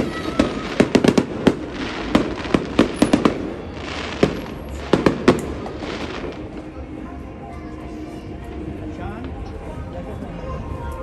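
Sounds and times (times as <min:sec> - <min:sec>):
fireworks bursting with sharp bangs: 0:00.0 - 0:06.8
fireworks crackle and hiss: 0:00.0 - 0:06.8.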